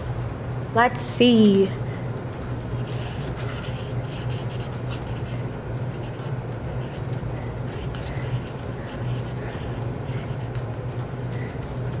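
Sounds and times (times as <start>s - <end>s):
low electrical hum: 0.0s - 12.0s
marker pen scratching on paper: 2.7s - 10.6s.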